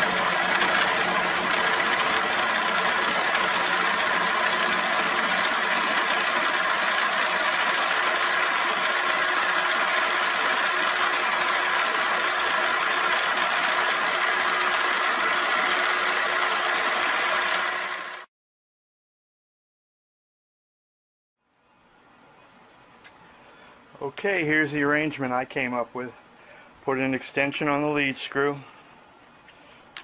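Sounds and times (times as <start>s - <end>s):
milling machine whine: 0.0s - 18.2s.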